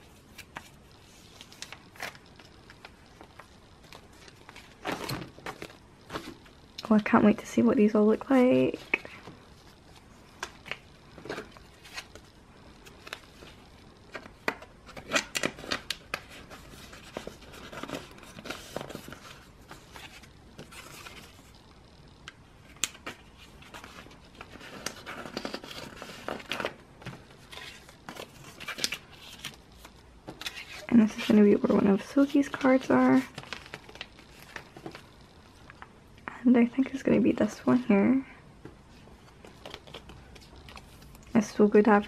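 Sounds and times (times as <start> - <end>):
plastic sleeves crinkling: 0.0 - 21.6, 22.6 - 35.8, 38.8 - 42.0.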